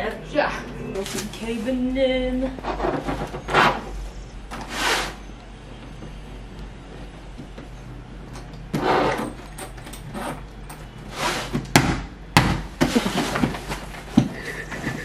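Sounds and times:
short scrapes: 4.6 - 5.2
suitcase scraping and rustling: 8.7 - 10.5, 12.8 - 15.0.

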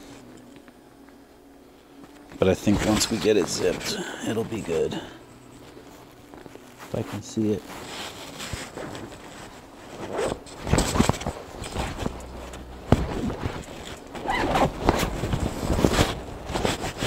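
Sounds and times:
jacket fabric rustling: 1.2 - 17.0
jacket zipper being pulled: 7.7 - 17.0.

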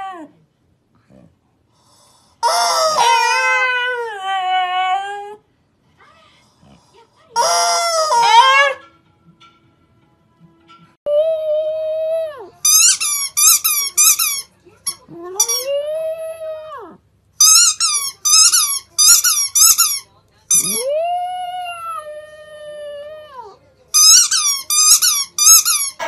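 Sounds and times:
squeaky rubber ball squeaking: 7.4 - 8.8, 12.6 - 15.7, 17.4 - 20.9, 23.9 - 26.0.

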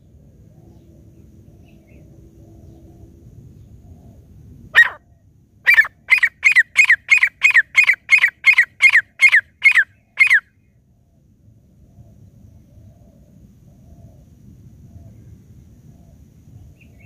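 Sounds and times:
francolin calling: 4.8 - 5.0, 5.6 - 10.6.

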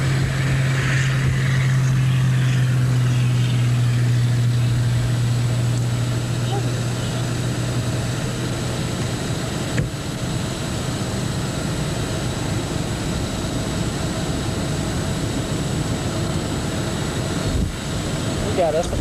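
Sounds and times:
wind rushing over microphone: 0.0 - 8.6, 14.3 - 19.0
low hum: 0.0 - 19.0.

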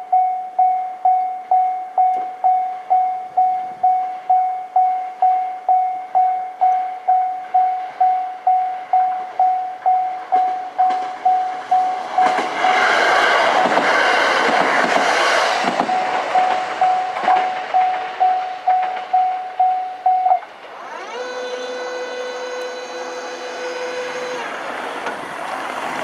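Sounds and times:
level crossing bell ringing: 0.0 - 12.9, 15.9 - 20.4
train engine and wheel noise: 0.0 - 26.0.

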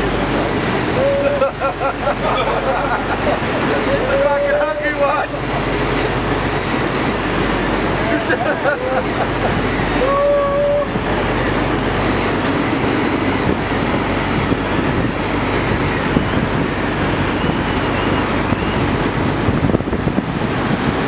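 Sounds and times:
boat engine running: 0.0 - 21.0
breaking sea: 0.0 - 21.0
wind on microphone: 5.2 - 21.0
person shouting: 10.0 - 10.9.

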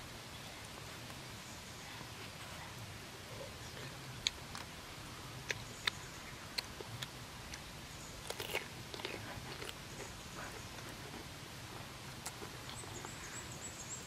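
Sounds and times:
eating clicks and smacks: 5.4 - 7.6, 8.2 - 10.2, 12.2 - 13.2
crunching bite into cucumber: 8.2 - 10.1.

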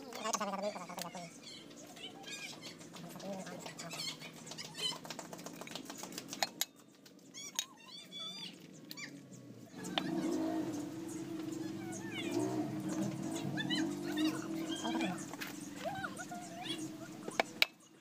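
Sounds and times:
birds chirping: 0.0 - 18.0
low humming: 9.7 - 17.6.

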